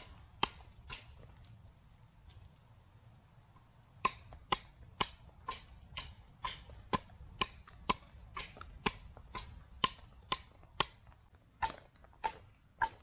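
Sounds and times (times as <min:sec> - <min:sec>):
adze chopping into wood: 0:00.0 - 0:01.2, 0:04.0 - 0:13.0.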